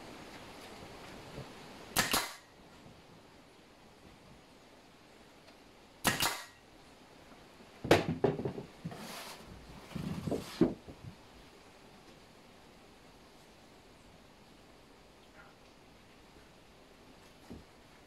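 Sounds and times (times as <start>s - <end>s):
nail gun shot: 1.9s - 2.5s, 6.0s - 6.6s
wooden knocks and clatter: 7.8s - 9.0s.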